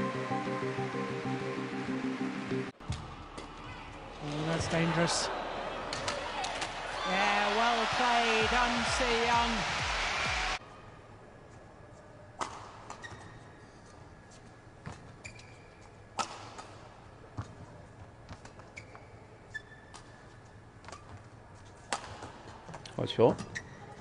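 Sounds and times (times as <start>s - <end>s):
racket hitting shuttlecock: 12.4s - 13.2s, 16.2s - 16.8s, 21.9s - 22.4s
shoes squeaking on court: 12.4s - 16.6s, 17.4s - 24.0s.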